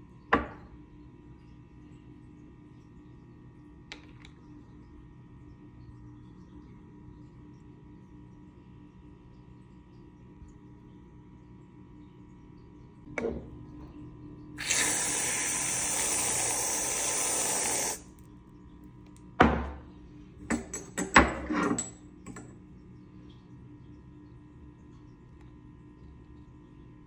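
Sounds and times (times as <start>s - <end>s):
aerosol can spraying hiss: 14.6s - 18.0s.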